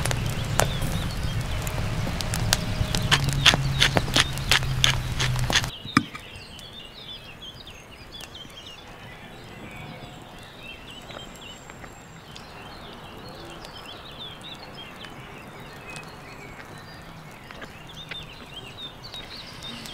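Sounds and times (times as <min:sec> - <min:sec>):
low hum: 0:00.0 - 0:06.3
small birds chirping: 0:00.0 - 0:19.9.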